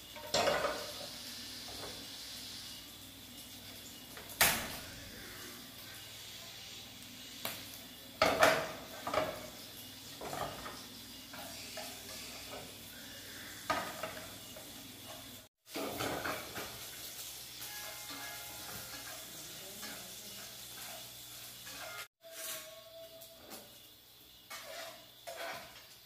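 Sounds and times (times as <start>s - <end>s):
metal pans clattering: 0.0s - 2.0s, 8.2s - 12.8s, 13.6s - 17.0s, 17.7s - 23.7s, 24.4s - 26.0s
utensil scraping frying pan: 0.0s - 4.0s, 8.2s - 26.0s
steady sizzle: 0.0s - 26.0s.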